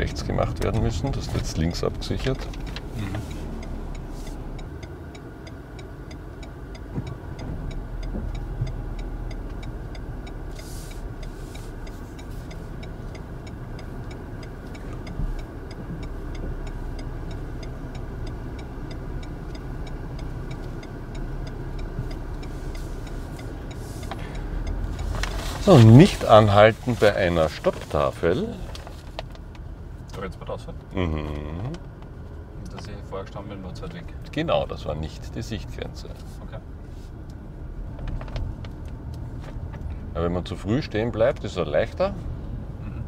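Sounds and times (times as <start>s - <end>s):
faint regular ticking: 0.0s - 30.8s
car engine and road noise: 0.0s - 43.0s.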